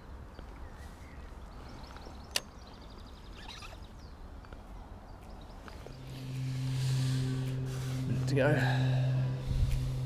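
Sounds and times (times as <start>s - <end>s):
low outdoor rumble: 4.0s - 10.0s.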